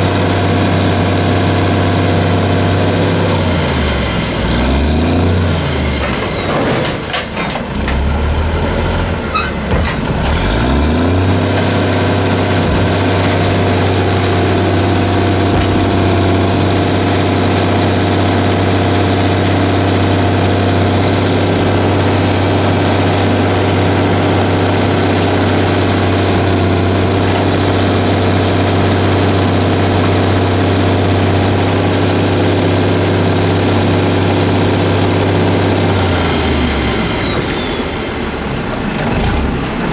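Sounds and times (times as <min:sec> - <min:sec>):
diesel truck engine running: 0:00.0 - 0:39.9.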